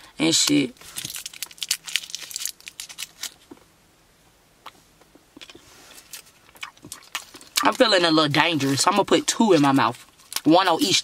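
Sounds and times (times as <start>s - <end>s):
wrapper crinkling and tearing: 0.8s - 3.4s.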